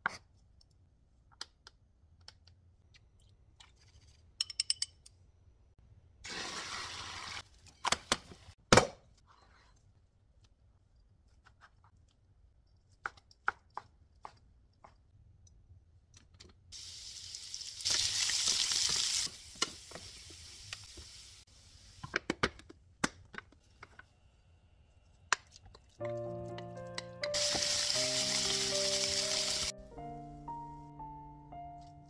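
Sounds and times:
carrots sizzling in hot oil: 0:16.8 - 0:22.0, 0:27.3 - 0:29.7.

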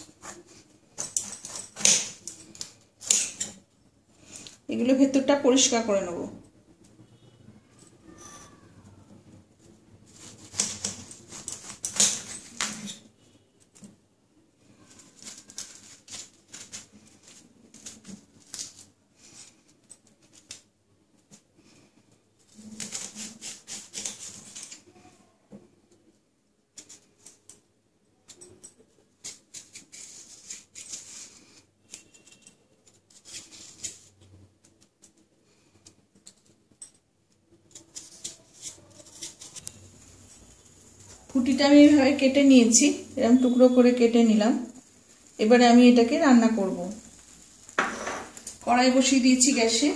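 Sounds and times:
knife slicing and scraping gourd: 0:00.0 - 0:03.6, 0:10.1 - 0:13.1, 0:22.5 - 0:24.8, 0:29.2 - 0:32.4, 0:33.1 - 0:34.2, 0:37.7 - 0:40.2.

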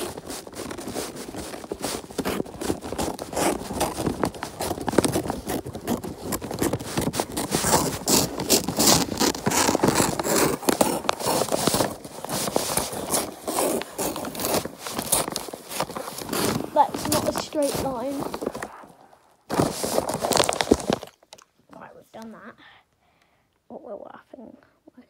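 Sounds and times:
paper crinkling and rustling: 0:00.0 - 0:21.5
scissors cutting paper: 0:01.3 - 0:18.6.

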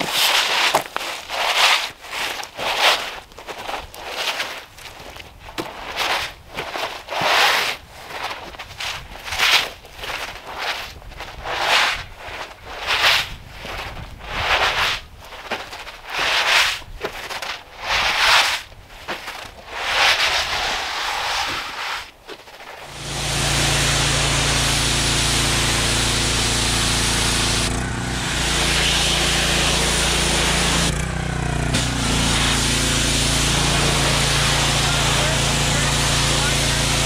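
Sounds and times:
diesel tractor engine running: 0:22.9 - 0:37.0.

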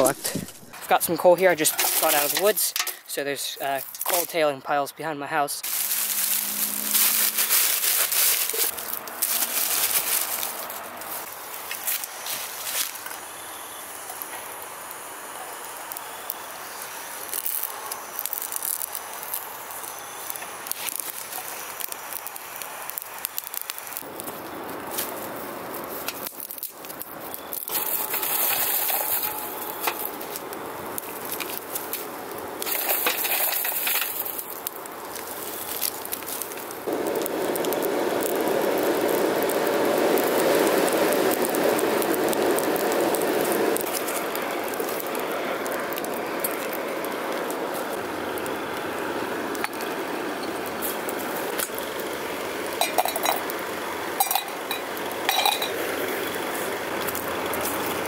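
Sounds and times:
fire crackling and popping: 0:00.0 - 0:58.0
loud rushing noise: 0:05.6 - 0:11.3
rushing hiss of flame and air: 0:05.6 - 0:58.0.

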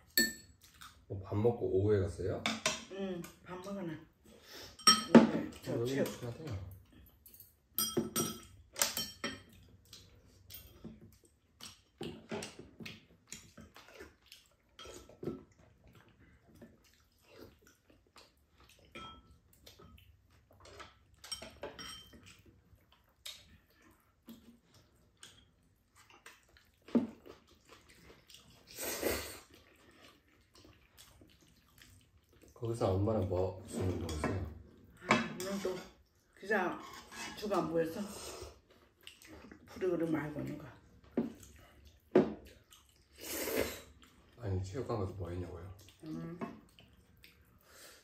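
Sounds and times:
slurping noodles: 0:26.0 - 0:32.6, 0:42.5 - 0:44.2.

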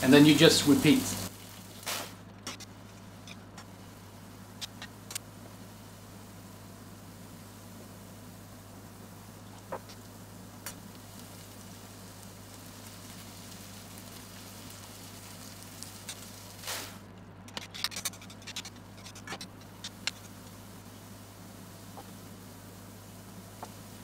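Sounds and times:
onions sizzling in a pan: 0:00.0 - 0:17.1, 0:19.6 - 0:24.0
steady low hum: 0:00.0 - 0:24.0
small crackles and ticks: 0:04.5 - 0:05.3, 0:09.4 - 0:21.0, 0:21.8 - 0:22.2, 0:23.5 - 0:24.0.

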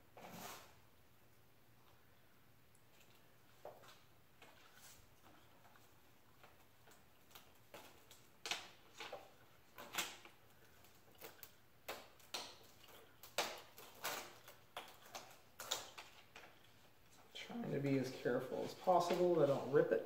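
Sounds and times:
plastic sheet crackling: 0:18.6 - 0:20.0.

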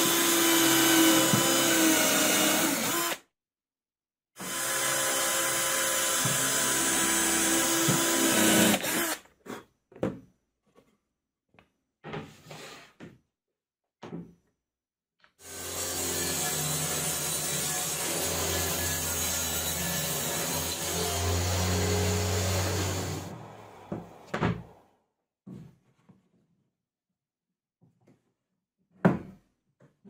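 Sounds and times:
cordless drill boring into wood: 0:00.0 - 0:03.2, 0:04.4 - 0:09.2, 0:15.4 - 0:23.3.

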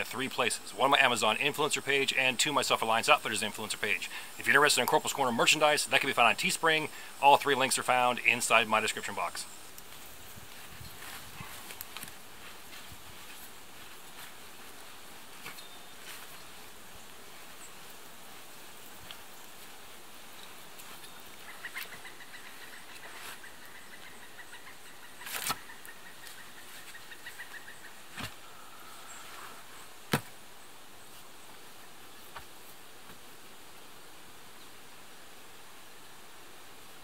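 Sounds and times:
insects buzzing: 0:00.0 - 0:35.4.

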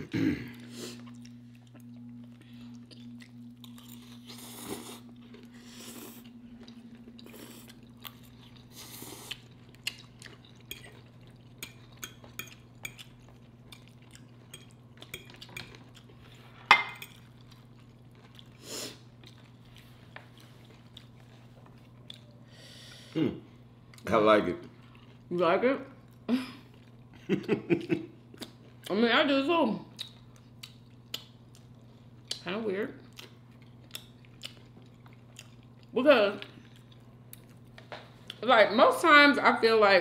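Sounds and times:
low hum: 0:00.0 - 0:08.8
chewing and crunching: 0:00.6 - 0:22.4, 0:23.8 - 0:25.3, 0:28.2 - 0:29.0, 0:29.9 - 0:38.4.

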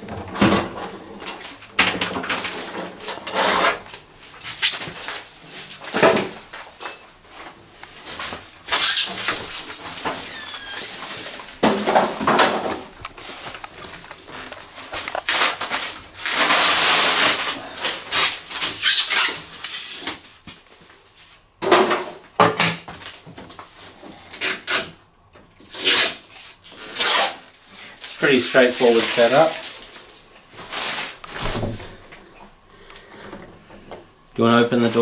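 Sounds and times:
short falling squeaks: 0:08.7 - 0:11.0.

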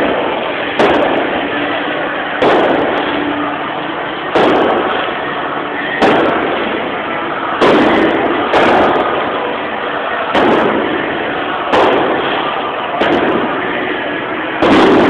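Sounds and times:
loud echoing bangs: 0:00.0 - 0:15.0
stadium crowd din: 0:00.0 - 0:15.0.

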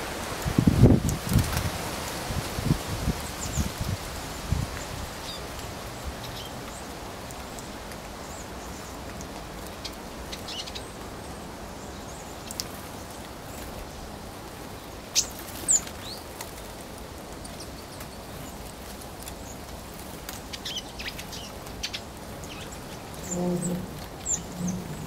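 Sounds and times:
outdoor background hiss: 0:00.0 - 0:25.0
small birds calling: 0:04.7 - 0:14.1, 0:20.3 - 0:25.0.

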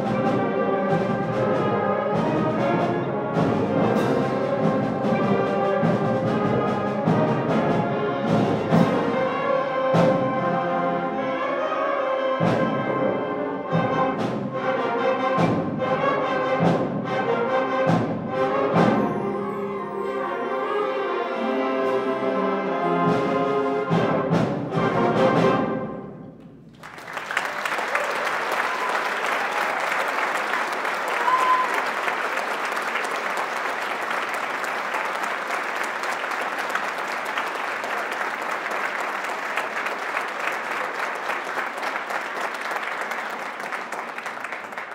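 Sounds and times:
percussion strikes: 0:00.0 - 0:10.7
concert band brass chords: 0:00.0 - 0:27.7
audience applause: 0:26.7 - 0:44.9
high whistle: 0:31.1 - 0:32.0.

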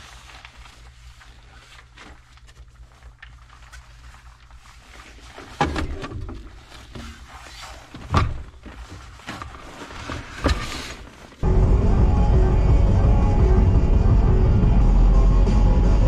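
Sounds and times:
thuds and clunks of gear loading: 0:05.4 - 0:11.2
low steady hum: 0:11.1 - 0:16.0.

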